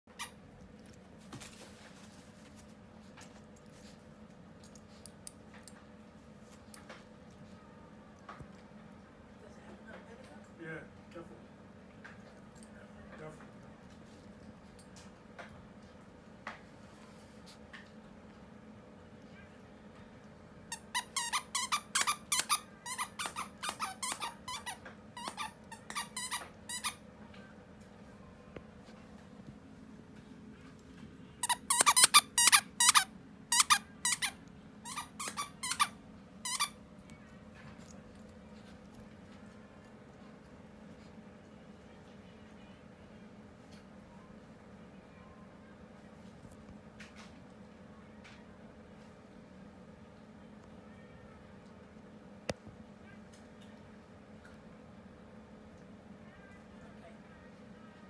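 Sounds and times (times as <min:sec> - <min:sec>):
low room hum: 0:00.1 - 0:58.0
puppy scuffling on carpet: 0:01.2 - 0:02.9
dog toy squeaking: 0:20.7 - 0:27.0, 0:31.4 - 0:36.8.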